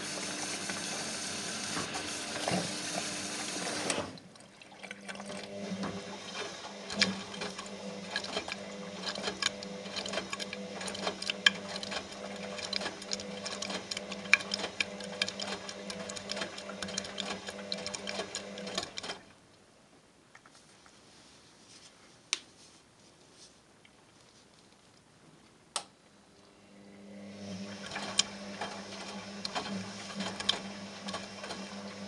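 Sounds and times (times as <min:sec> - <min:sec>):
washing machine motor hum: 0:00.0 - 0:19.4, 0:26.6 - 0:32.0.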